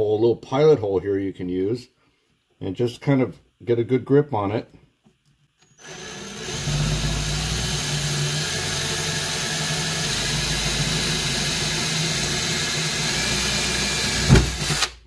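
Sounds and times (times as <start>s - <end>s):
cordless drill boring through plastic: 5.6s - 15.0s.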